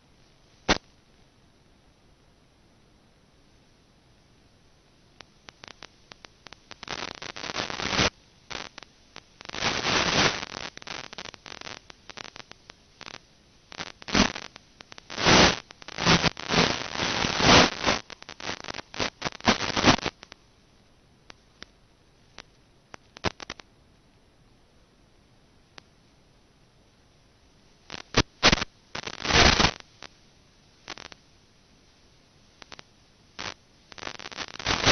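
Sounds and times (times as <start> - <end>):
crackling radio static: 0.0 - 1.8, 3.5 - 23.7, 25.7 - 26.2, 27.2 - 34.9
clicks and hissing bursts: 0.2 - 1.0, 5.2 - 20.4, 21.3 - 23.7, 27.8 - 30.2, 30.8 - 31.3, 32.6 - 34.9.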